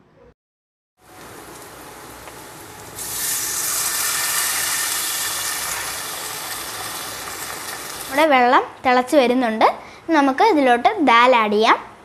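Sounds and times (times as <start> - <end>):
masala sizzling in a pan: 1.0 - 8.3
water poured into hot pan: 3.0 - 8.1.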